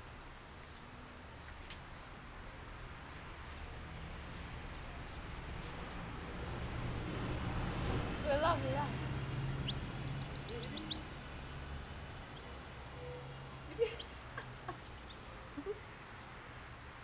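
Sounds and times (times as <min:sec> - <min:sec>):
high falling chirps: 0:09.2 - 0:17.0.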